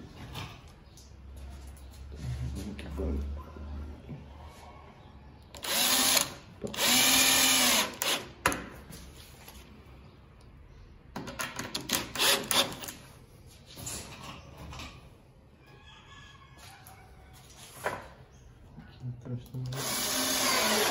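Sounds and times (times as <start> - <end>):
cordless drill whining: 5.6 - 8.2, 12.2 - 12.9, 19.7 - 20.9.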